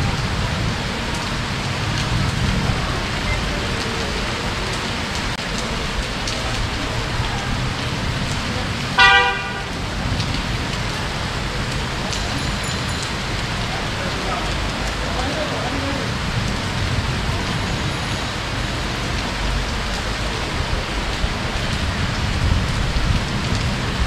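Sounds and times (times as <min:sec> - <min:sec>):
heavy rain falling: 0:00.0 - 0:24.0
vehicle horn toot: 0:09.0 - 0:09.8.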